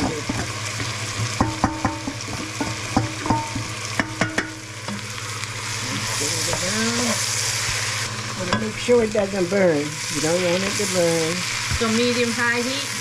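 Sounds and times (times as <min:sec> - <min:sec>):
onions sizzling in a pot: 0:00.0 - 0:13.0
metal spoon knocking steel bowl: 0:01.4 - 0:04.6.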